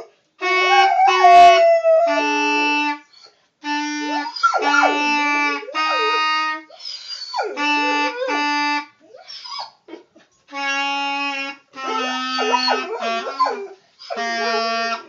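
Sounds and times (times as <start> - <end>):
clarinet playing held notes: 0.4 - 8.9, 10.5 - 15.0
dog howling: 0.6 - 2.8, 4.2 - 5.1, 11.8 - 15.0.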